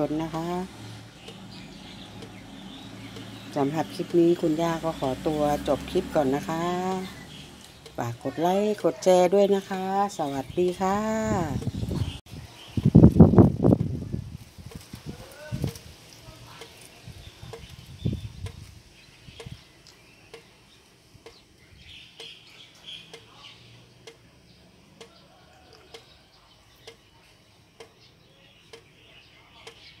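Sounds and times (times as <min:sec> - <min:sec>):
faint ticking: 0:00.3 - 0:04.2, 0:06.8 - 0:08.2.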